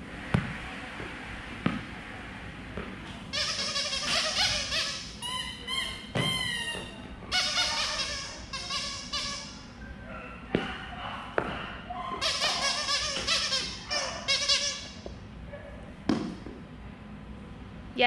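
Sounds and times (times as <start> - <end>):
ball knocking on floor: 6.1 - 6.9, 16.1 - 16.6.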